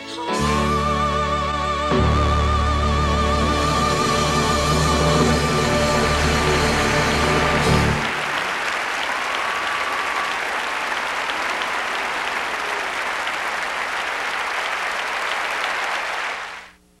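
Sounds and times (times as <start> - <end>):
audience applauding: 5.8 - 16.8.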